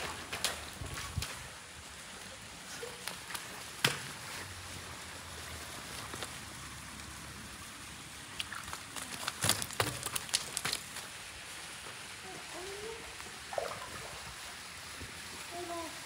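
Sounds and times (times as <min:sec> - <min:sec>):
stream running over stones: 0:00.0 - 0:16.0
clicks and clatters on pebbles: 0:08.4 - 0:11.2.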